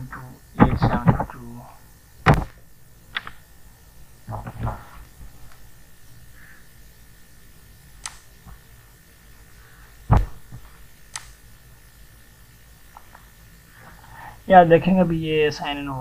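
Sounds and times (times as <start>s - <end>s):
low electrical hum: 0.0s - 16.0s
computer mouse clicks: 3.1s - 3.4s, 8.0s - 8.3s, 11.1s - 11.4s
heavy thump: 10.1s - 10.6s.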